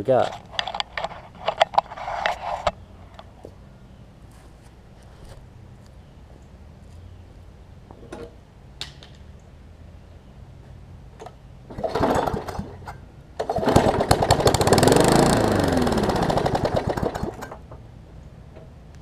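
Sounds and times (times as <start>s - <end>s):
mower engine pull-started: 11.2s - 17.8s
engine sputter: 11.7s - 17.8s.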